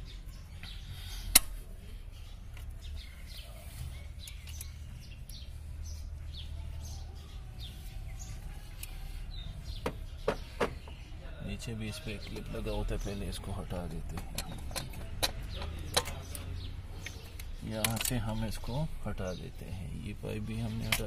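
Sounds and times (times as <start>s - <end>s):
small birds chirping: 0.0s - 21.0s
small clicks of hose handling: 14.1s - 18.4s.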